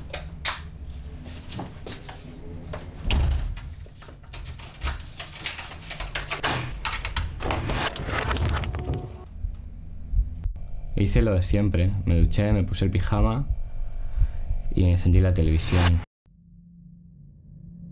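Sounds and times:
low steady hum: 6.8s - 17.9s.

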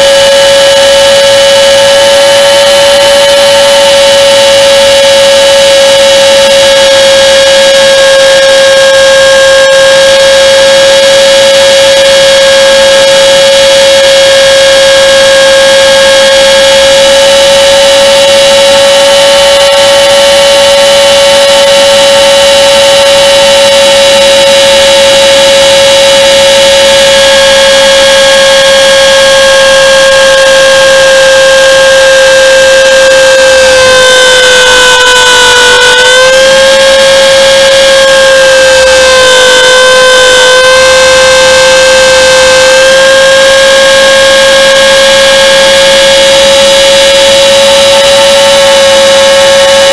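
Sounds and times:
rc helicopter motor whine: 0.0s - 49.9s.

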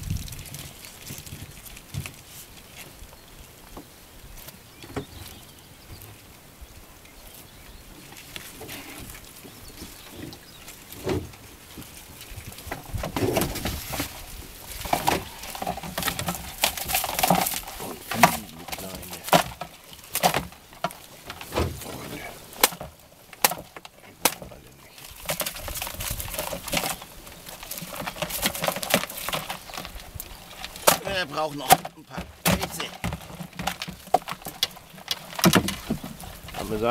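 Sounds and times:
crabs knocking in plastic bucket: 12.6s - 21.8s, 22.5s - 36.9s
net mesh rustling: 13.1s - 36.9s.

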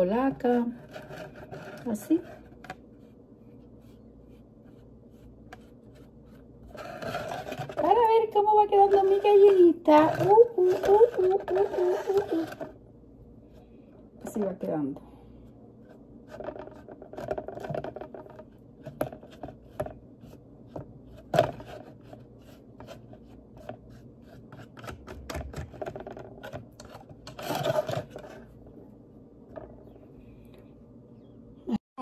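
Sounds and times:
scraping rustle: 0.4s - 8.1s
paintbrush dabbing on plastic bottle: 2.8s - 12.2s
plastic scratching and clicking: 5.4s - 12.8s, 24.5s - 28.5s.

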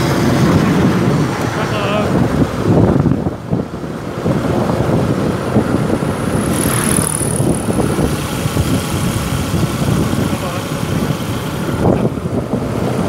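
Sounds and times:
motorcycle running: 0.0s - 13.0s
road noise: 0.0s - 13.0s
wind buffeting microphone: 0.0s - 13.0s.

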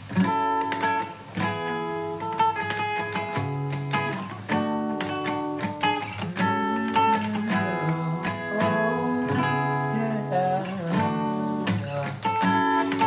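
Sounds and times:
acoustic guitar strumming: 0.0s - 13.0s
person singing: 6.2s - 12.9s.

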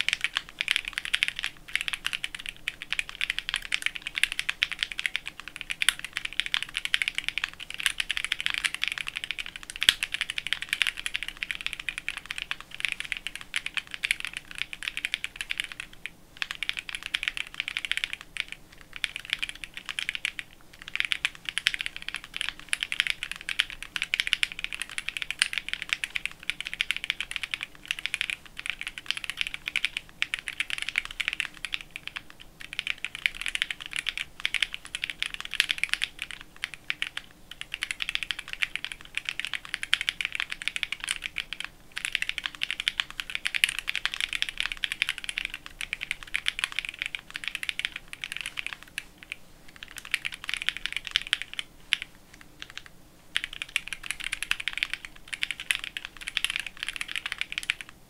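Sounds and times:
fast mechanical keyboard typing: 0.0s - 58.0s.

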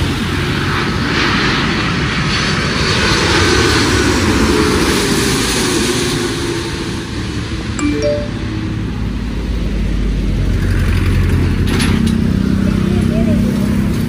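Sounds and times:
jet engines roaring overhead: 0.0s - 7.7s.

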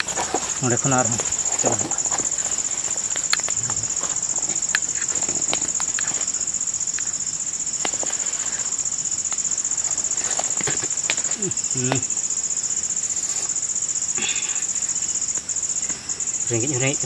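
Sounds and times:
insects trilling: 0.0s - 17.0s
small clicks and snaps: 1.6s - 3.8s.

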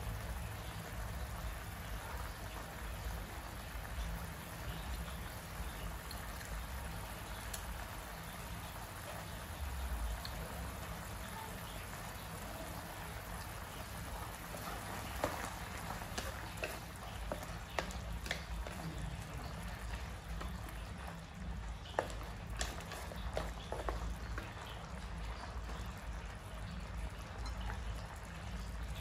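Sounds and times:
sauce bubbling and crackling in wok: 0.0s - 29.0s
wooden spatula knocking on pan: 14.5s - 20.8s, 21.8s - 24.7s.

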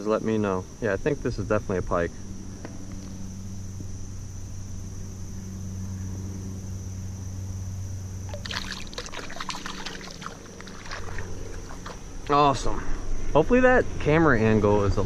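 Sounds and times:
crickets chirring: 0.0s - 15.0s
hand splashing in water: 8.3s - 12.0s
water dripping: 8.3s - 12.0s.

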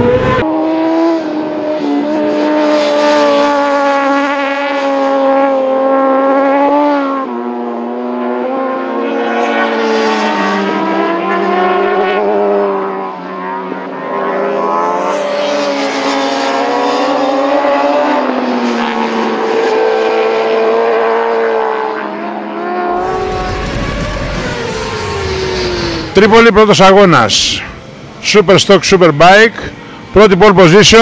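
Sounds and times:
racing motorcycle engines: 0.0s - 31.0s
deeper engine rumble: 23.0s - 28.4s.

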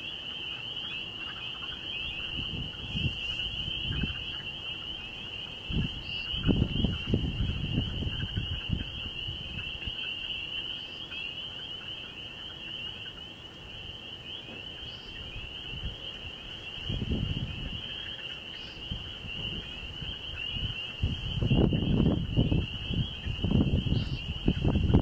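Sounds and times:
night insects trilling: 0.0s - 25.0s
low rumbling microphone noise: 2.2s - 4.3s, 5.6s - 9.9s, 14.5s - 17.9s, 18.8s - 25.0s.

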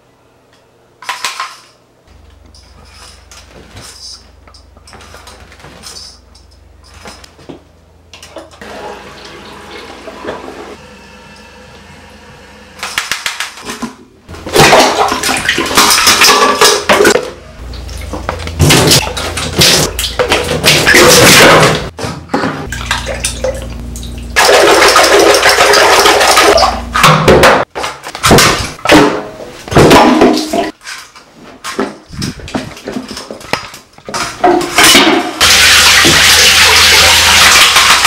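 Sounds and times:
toilet flush water rushing: 8.6s - 12.7s, 22.7s - 26.8s, 35.4s - 38.0s.

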